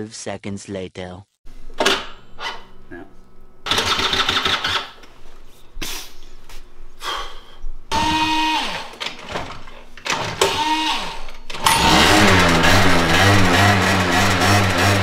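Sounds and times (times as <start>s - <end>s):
scooter electric starter cranking: 3.6s - 5.1s, 7.9s - 15.0s.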